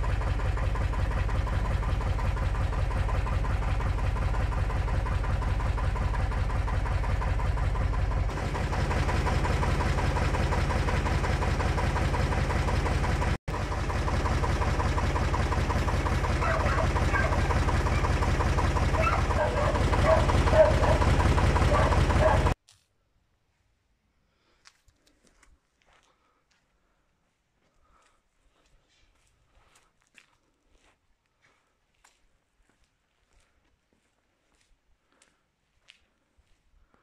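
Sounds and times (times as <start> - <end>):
tractor diesel engine idling: 0.0 - 22.6.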